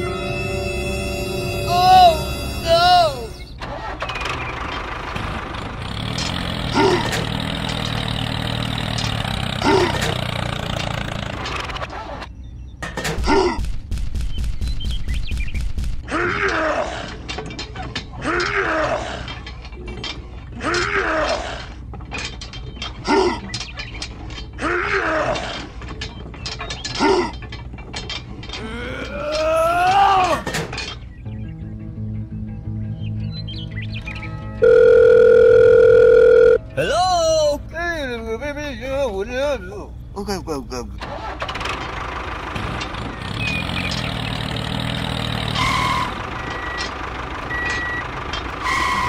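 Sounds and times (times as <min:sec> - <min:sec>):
tractor engine idling: 0:00.0 - 0:12.1, 0:36.6 - 0:49.0
short rising and falling squeaks: 0:00.0 - 0:12.9, 0:41.0 - 0:49.0.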